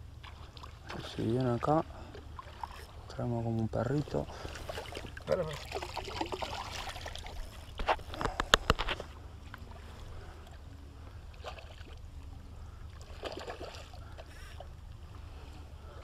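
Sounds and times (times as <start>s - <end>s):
water splashing: 0.2s - 3.1s, 3.9s - 7.8s, 11.3s - 14.2s.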